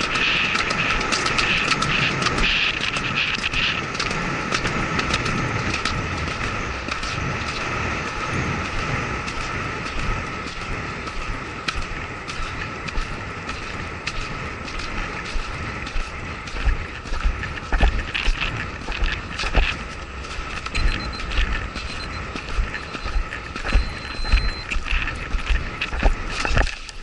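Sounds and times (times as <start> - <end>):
hoofbeats on grass: 0.0 - 27.0
wind rushing over microphone: 0.0 - 27.0
sharp clicks: 17.7 - 27.0.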